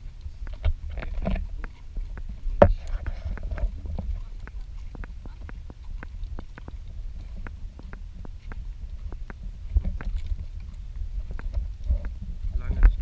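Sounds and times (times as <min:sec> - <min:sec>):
horse hooves clicking: 0:00.0 - 0:13.0
wind rumble on microphone: 0:00.0 - 0:13.0.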